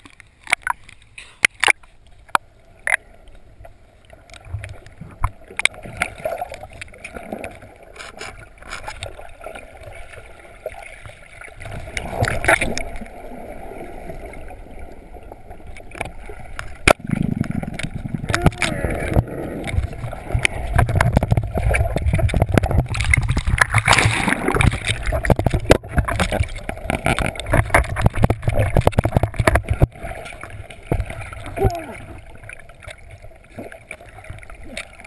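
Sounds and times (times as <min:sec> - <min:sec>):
muffled underwater gurgling: 0:16.8 - 0:32.8.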